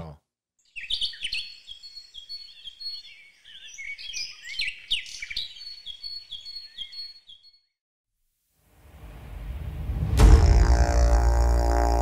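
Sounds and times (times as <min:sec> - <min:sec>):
songbirds chirping and singing: 0:00.6 - 0:07.6.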